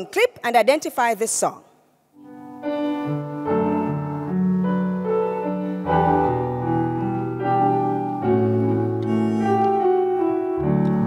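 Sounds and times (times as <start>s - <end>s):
hymn tune on piano: 2.2s - 11.0s.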